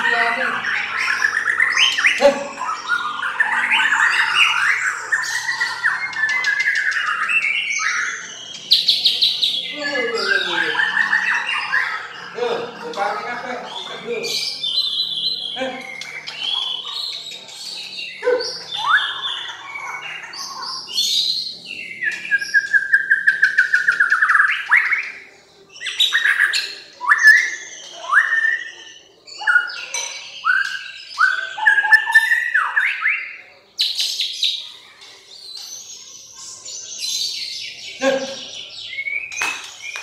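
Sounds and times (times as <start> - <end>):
songbirds singing: 0.0 - 40.0.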